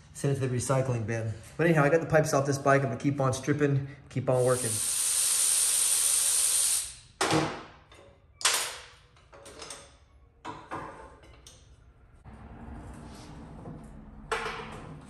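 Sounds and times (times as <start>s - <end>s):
spray hiss: 4.3s - 7.0s
knocks of tools being handled: 7.2s - 11.8s.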